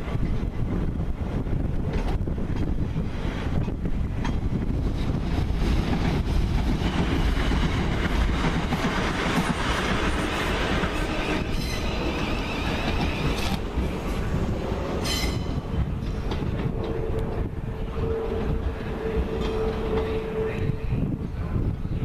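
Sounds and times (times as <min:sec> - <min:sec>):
train wheels rumbling on rail: 0:00.0 - 0:22.0
high wheel squeal: 0:11.0 - 0:13.5.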